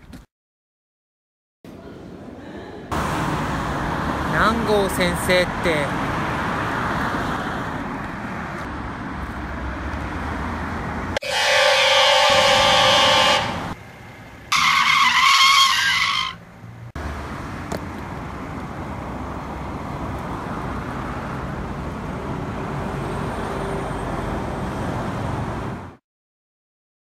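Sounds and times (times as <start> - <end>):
car driving noise: 2.9 - 26.0
car tyres screeching: 10.1 - 16.9.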